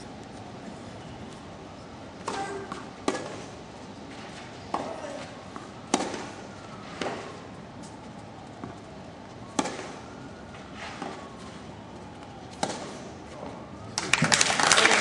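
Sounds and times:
steady background hum: 0:00.0 - 0:14.6
tennis ball struck by rackets: 0:02.2 - 0:03.5, 0:04.7 - 0:07.4, 0:09.6 - 0:10.0, 0:10.8 - 0:11.2, 0:12.5 - 0:13.0.

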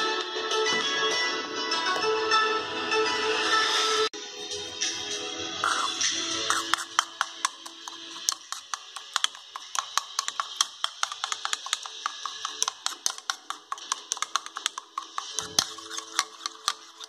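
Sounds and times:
spoon clicking against plastic bowl: 0:06.5 - 0:17.0.

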